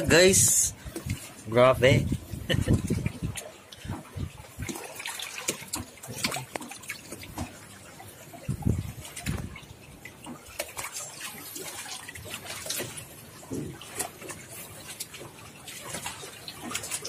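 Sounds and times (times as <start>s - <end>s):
fish splashing in net: 4.6s - 7.6s.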